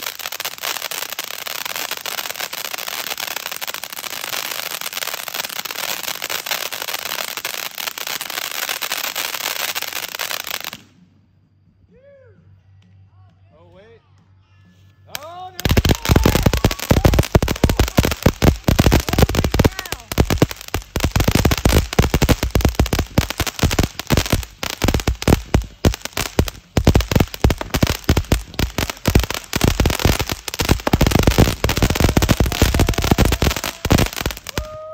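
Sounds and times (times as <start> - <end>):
firework fountain cracks and pops: 0.0 - 11.0, 15.1 - 34.9.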